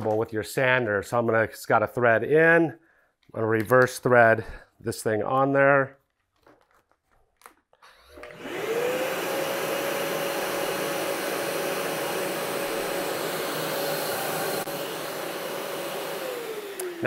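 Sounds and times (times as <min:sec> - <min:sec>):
shop vacuum motor whining: 0:07.8 - 0:17.0.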